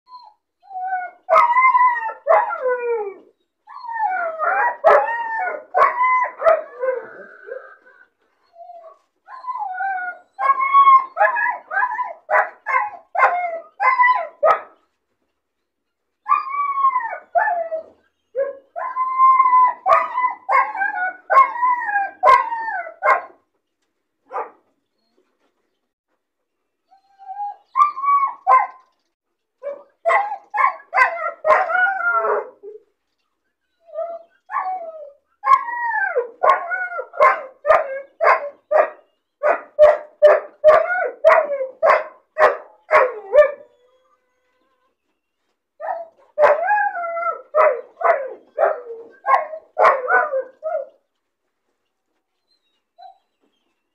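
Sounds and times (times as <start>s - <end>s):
puppy whining and yelping: 0.1s - 14.4s, 26.8s - 28.8s, 29.6s - 41.9s, 42.9s - 51.0s, 52.4s - 53.4s.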